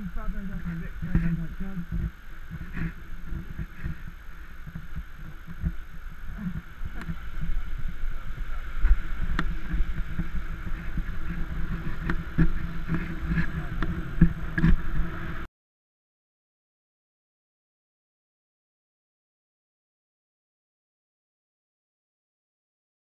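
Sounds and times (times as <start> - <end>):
wind and road noise: 0.0 - 15.5.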